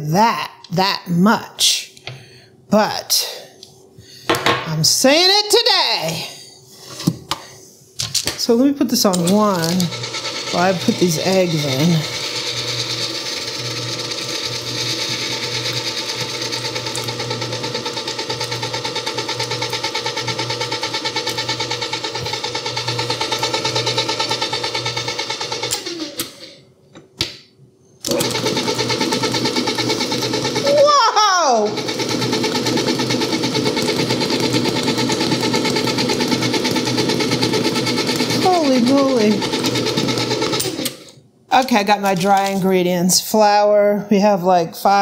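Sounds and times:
stand mixer humming and pulsing: 0:09.2 - 0:26.5, 0:28.1 - 0:41.1.

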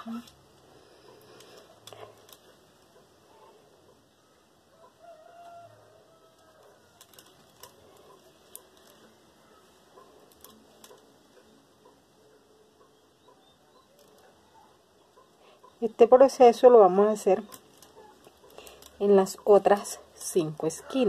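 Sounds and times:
beads clicking together: 0:06.3 - 0:09.2, 0:10.2 - 0:11.2, 0:17.3 - 0:19.8.

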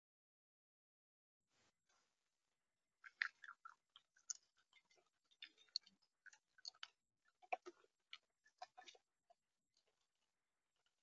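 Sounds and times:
animal eating seed: 0:03.0 - 0:10.1.

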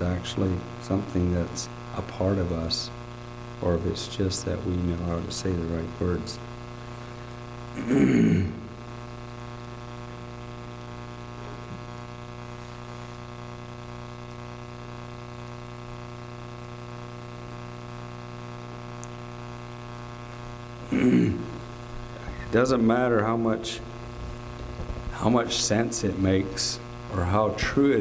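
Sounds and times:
electrical mains hum: 0:00.0 - 0:28.0
microphone noise burst: 0:23.9 - 0:26.2.

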